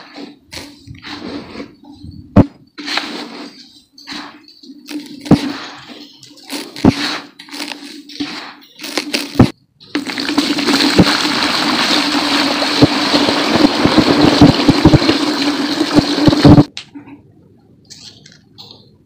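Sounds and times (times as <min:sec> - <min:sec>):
water pouring onto dirt: 0:09.9 - 0:16.6.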